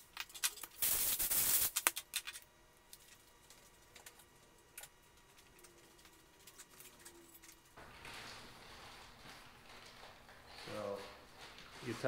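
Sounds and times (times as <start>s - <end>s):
aerosol can spraying: 0.8s - 1.8s.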